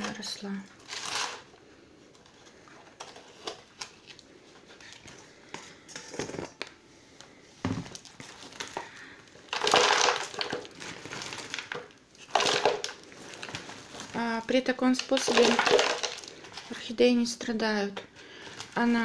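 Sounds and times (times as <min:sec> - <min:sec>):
plastic pot crinkling: 0:00.0 - 0:01.5, 0:07.8 - 0:17.0.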